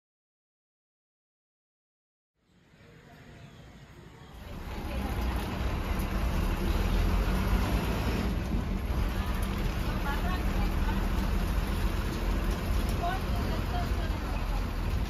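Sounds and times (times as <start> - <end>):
bus engine rumble: 4.4 - 15.0.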